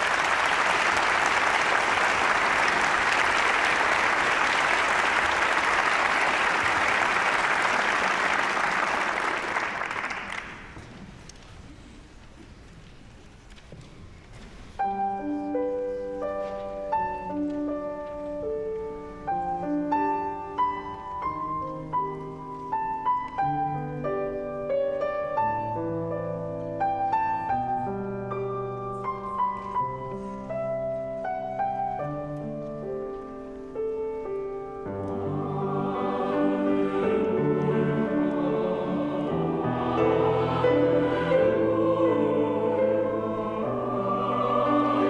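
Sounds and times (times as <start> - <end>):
slow piano chords: 14.7 - 45.0
choir singing: 34.9 - 45.0.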